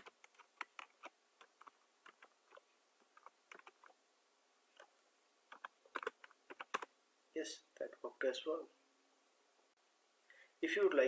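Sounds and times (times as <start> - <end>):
keyboard clicks: 0.0 - 3.9, 5.5 - 6.9.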